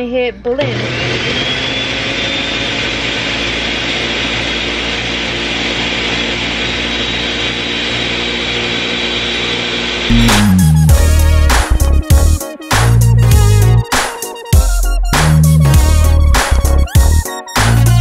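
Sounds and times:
blender whirring: 0:00.5 - 0:10.3.

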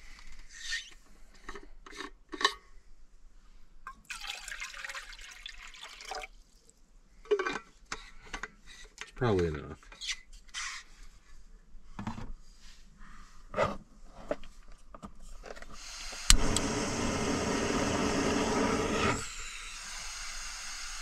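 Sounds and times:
gas burner hissing: 0:15.8 - 0:21.0
igniter click: 0:16.3 - 0:16.7.

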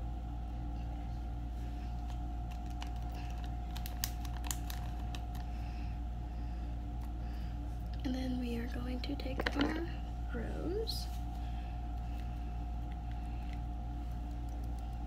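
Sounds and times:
low electrical hum: 0:00.0 - 0:15.0
plastic packet crinkling: 0:02.0 - 0:05.5.

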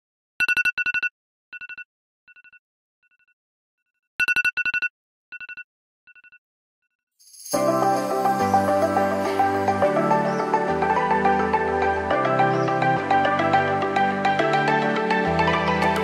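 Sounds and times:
music: 0:07.3 - 0:16.0.

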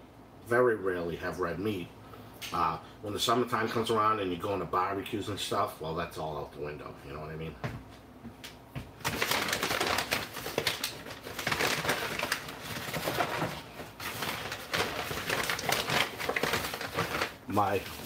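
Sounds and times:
crinkling and rustling: 0:08.8 - 0:18.0.

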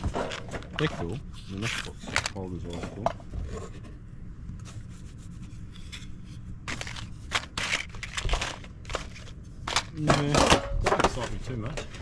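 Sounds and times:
matchboxes rustling in metal tin: 0:06.7 - 0:10.0.

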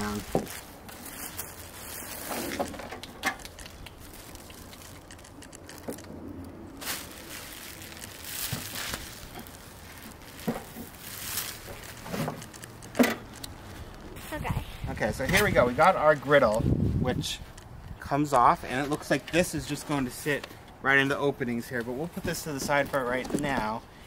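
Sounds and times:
plastic bag crinkling: 0:00.0 - 0:06.1, 0:06.7 - 0:14.4.

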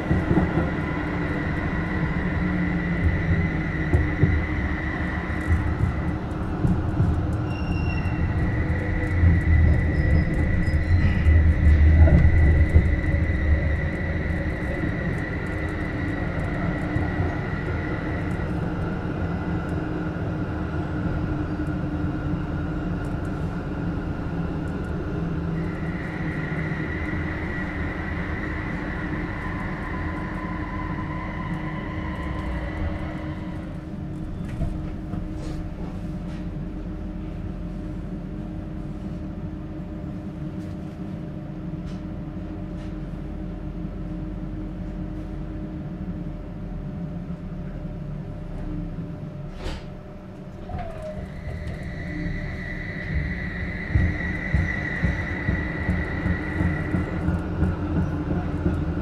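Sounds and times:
tram wheels rumbling on track: 0:00.0 - 0:59.0
high electrical whines: 0:50.4 - 0:58.9.

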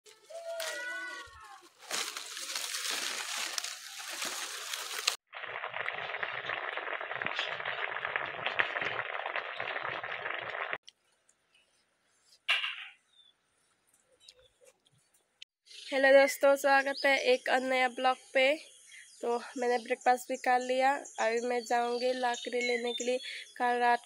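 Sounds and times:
okra sizzling in a frying pan: 0:01.9 - 0:10.8.

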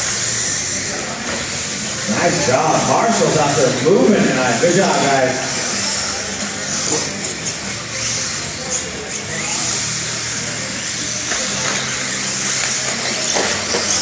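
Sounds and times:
electric motors whining: 0:00.0 - 0:14.0.

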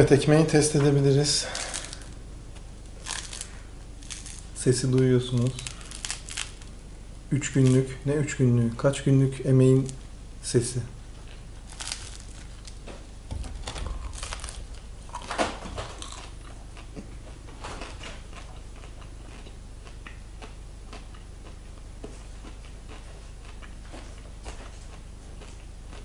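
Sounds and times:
bread crust crackling: 0:01.4 - 0:06.8, 0:11.4 - 0:15.4
crunching of crust being chewed: 0:01.4 - 0:06.8, 0:07.4 - 0:07.9, 0:11.1 - 0:26.0.

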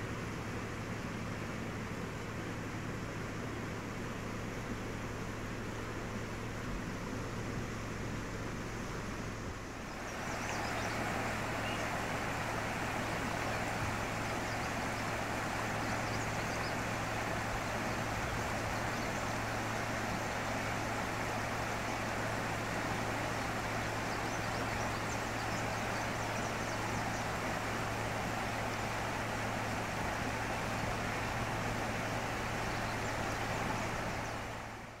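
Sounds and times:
steady low hum: 0:00.0 - 0:35.0
flooded creek rushing: 0:08.1 - 0:35.0.

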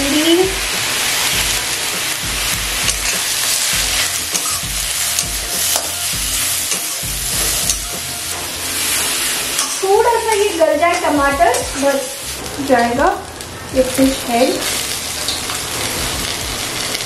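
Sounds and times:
food sizzling in hot oil: 0:00.0 - 0:17.0
spatula scraping pan: 0:02.8 - 0:12.9.

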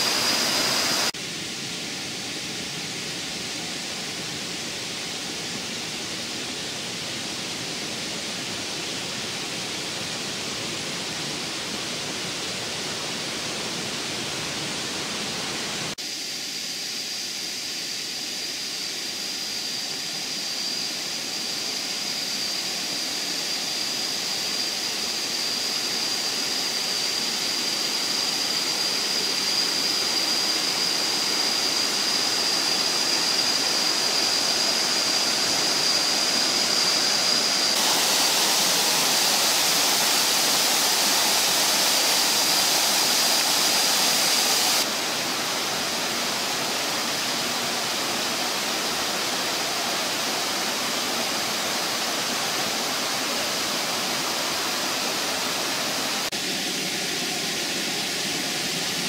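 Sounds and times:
waterfall rushing: 0:00.0 - 0:01.2, 0:28.6 - 0:59.0
high thin whine: 0:00.0 - 0:05.9, 0:15.3 - 0:59.0.

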